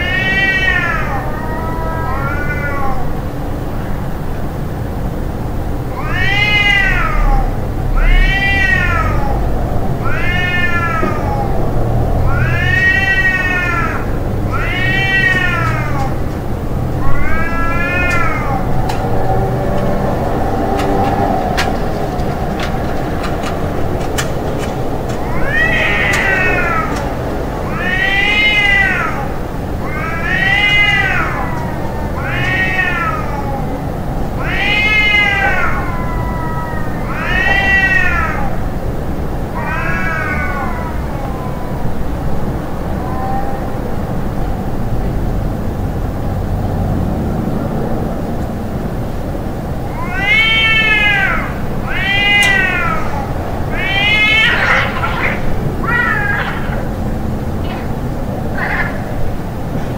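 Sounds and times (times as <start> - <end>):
cat meowing: 0.0 - 3.3, 5.9 - 20.0, 25.2 - 38.8, 39.5 - 44.3, 49.8 - 59.4
low background rumble: 0.0 - 59.9.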